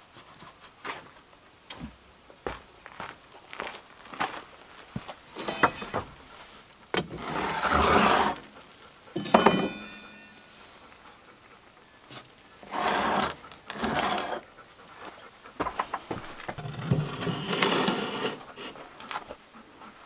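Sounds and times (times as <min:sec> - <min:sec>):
pot scraping across oven floor: 0:07.1 - 0:08.4, 0:12.6 - 0:14.4, 0:16.6 - 0:18.8
metal pot clanking: 0:09.2 - 0:10.3.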